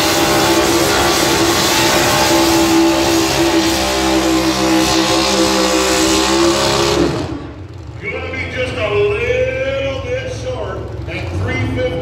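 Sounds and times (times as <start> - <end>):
truck engine at full throttle: 0.0 - 12.0.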